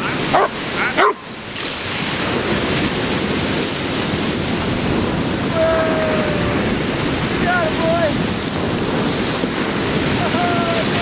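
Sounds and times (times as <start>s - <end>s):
surf breaking on shore: 0.0s - 11.0s
dog barking: 0.3s - 1.3s.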